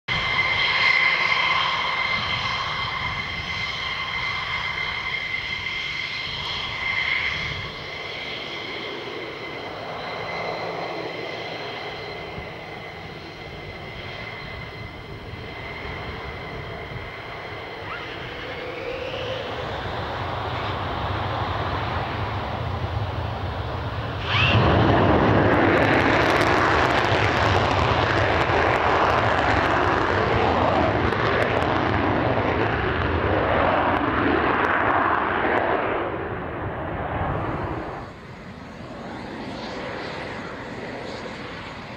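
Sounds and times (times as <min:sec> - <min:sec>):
jet engine whine: 0:00.0 - 0:41.9
high-pitched engine whistle: 0:17.2 - 0:20.8, 0:24.2 - 0:24.8.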